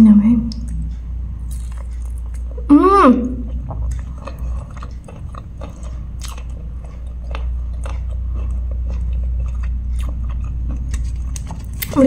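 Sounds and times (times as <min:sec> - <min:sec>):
low hum: 0:00.0 - 0:12.0
chewing with wet mouth clicks: 0:00.5 - 0:02.6, 0:03.4 - 0:12.0.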